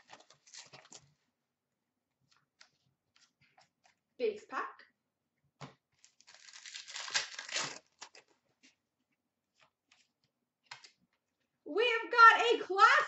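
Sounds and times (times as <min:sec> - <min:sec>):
cards rustling and clicking: 0:00.0 - 0:01.2
wrapper being torn open: 0:06.0 - 0:08.3.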